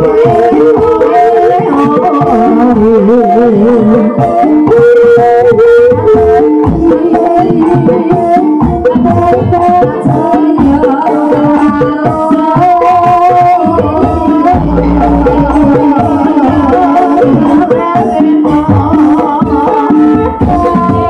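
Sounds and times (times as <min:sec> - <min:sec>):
hand drums beating: 0:00.0 - 0:21.0
sustained melody: 0:14.5 - 0:16.5.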